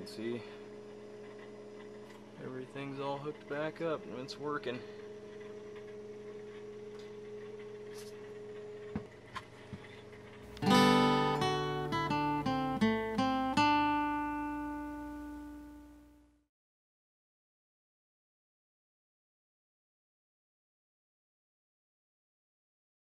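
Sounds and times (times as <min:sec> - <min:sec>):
boiler and pump humming: 0:00.0 - 0:16.3
acoustic guitar jingle: 0:10.5 - 0:16.0.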